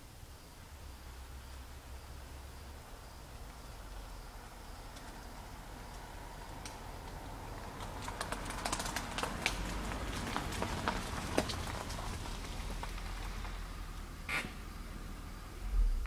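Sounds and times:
plant leaves rustling and crackling: 4.8s - 14.1s.

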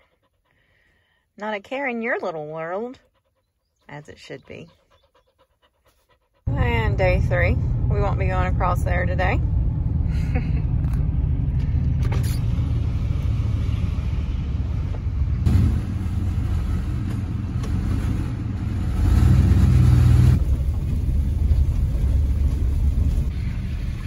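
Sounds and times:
vehicle engine and tyre rumble: 4.0s - 24.0s.

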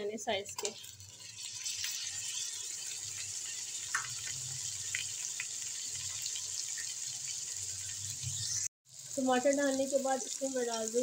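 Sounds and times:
tomatoes sizzling in a pot: 0.0s - 11.0s.

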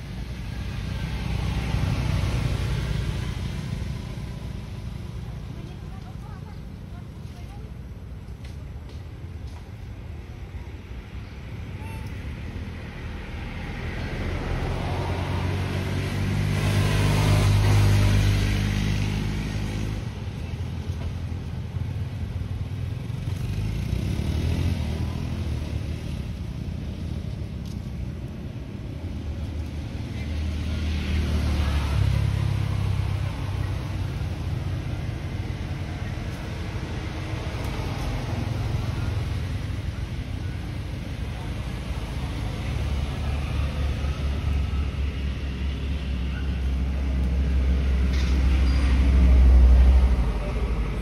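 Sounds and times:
vehicles driving past: 0.0s - 51.0s
low engine rumble: 24.8s - 51.0s.

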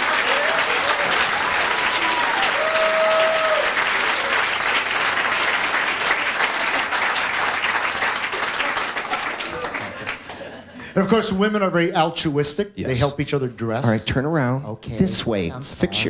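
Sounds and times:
calls from audience: 0.0s - 10.0s
audience applauding and cheering: 0.0s - 10.6s.

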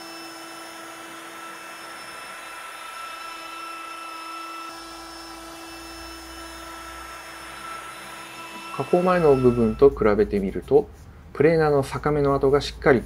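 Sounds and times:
router motor whining: 0.0s - 9.9s.

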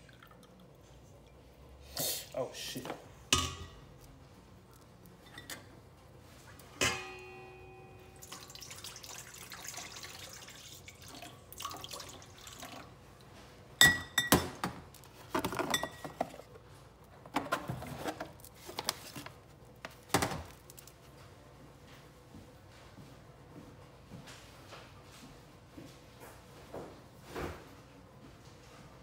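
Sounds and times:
liquid pouring: 0.0s - 1.3s, 8.2s - 13.0s
glass clink ringing: 6.8s - 8.3s.

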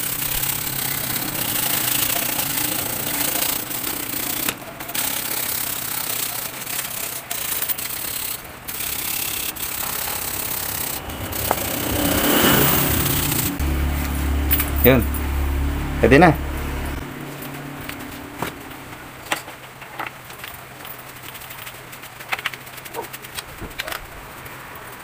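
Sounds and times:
brush scrubbing metal: 0.0s - 14.2s.

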